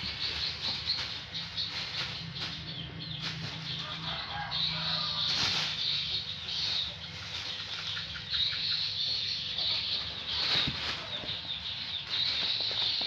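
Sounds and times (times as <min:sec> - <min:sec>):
plastic bag rustling: 0:00.0 - 0:08.1, 0:09.7 - 0:13.0
paws scuffling: 0:09.6 - 0:13.0.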